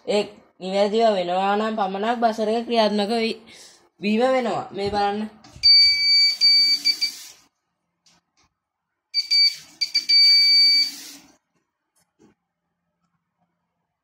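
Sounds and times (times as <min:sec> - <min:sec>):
electronic buzzer high beep: 0:05.6 - 0:07.3, 0:09.2 - 0:11.2.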